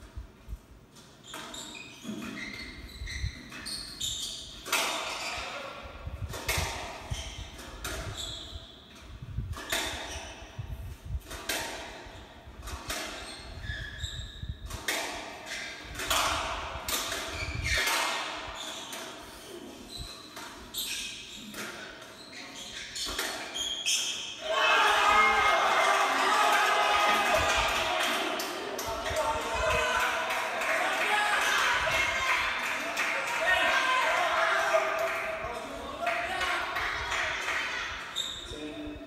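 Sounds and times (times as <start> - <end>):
squash ball smacking rackets and walls: 1.0 - 25.4
sneakers squeaking on wooden floor: 1.1 - 5.6, 7.1 - 10.5, 12.9 - 16.2, 16.9 - 24.4, 38.1 - 38.6.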